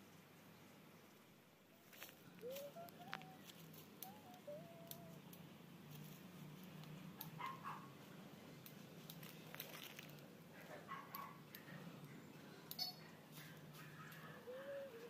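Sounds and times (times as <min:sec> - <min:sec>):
low steady hum: 0:00.0 - 0:15.0
faint clicks: 0:01.9 - 0:07.4
distant dog barking: 0:07.2 - 0:08.0, 0:10.6 - 0:11.8, 0:12.9 - 0:15.0.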